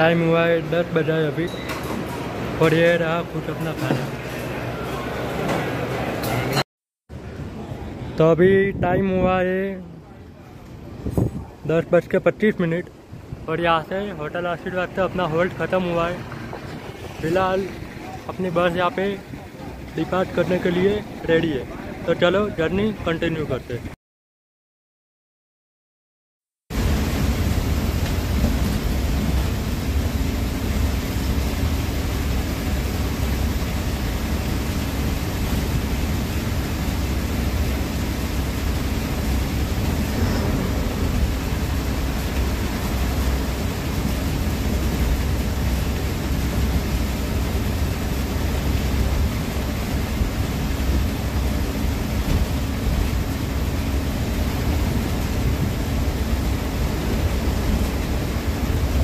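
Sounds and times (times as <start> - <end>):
bus engine drone and road rumble: 26.8 - 59.0.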